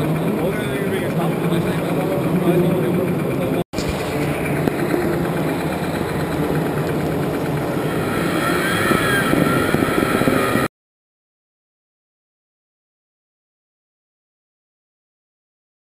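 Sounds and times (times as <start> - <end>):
small engine running: 0.0 - 10.7.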